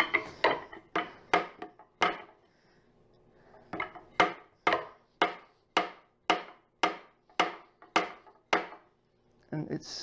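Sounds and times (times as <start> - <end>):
rubber mallet knocking on wood: 3.8 - 8.8.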